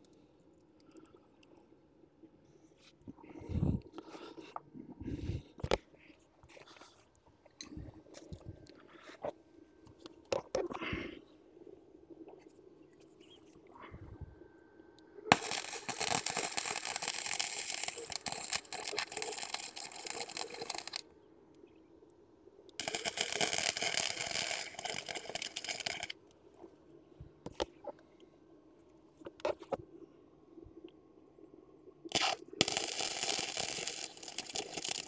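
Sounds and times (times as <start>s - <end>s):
welder arc crackling and sizzling: 15.3s - 21.0s, 22.7s - 26.2s, 32.1s - 35.0s.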